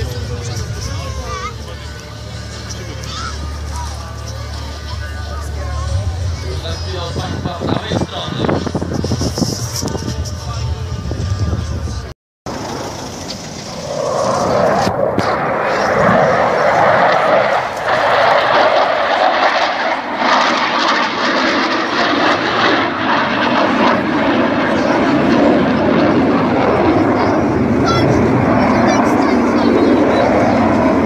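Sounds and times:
jet engine roar: 0:00.0 - 0:31.0.

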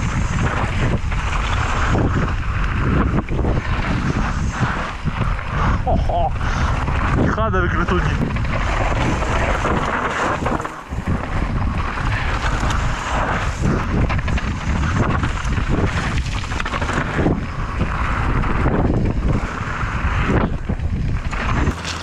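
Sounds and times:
wind rushing over microphone: 0:00.0 - 0:22.0
bike knocking and rattling: 0:06.4 - 0:22.0.

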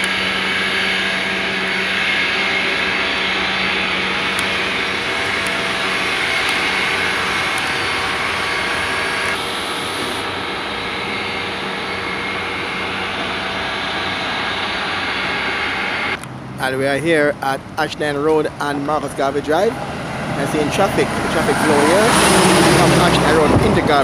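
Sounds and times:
low hum: 0:00.0 - 0:16.7
construction machinery engine noise: 0:00.0 - 0:24.0
road traffic: 0:00.0 - 0:24.0.

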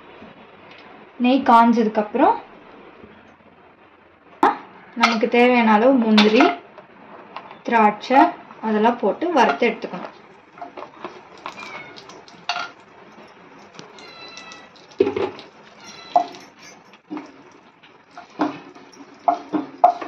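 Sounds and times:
kitchenware clinking on a pan: 0:06.2 - 0:06.6, 0:10.6 - 0:12.8, 0:14.0 - 0:17.4, 0:18.2 - 0:20.0
nuts frying in ghee: 0:10.1 - 0:20.0.

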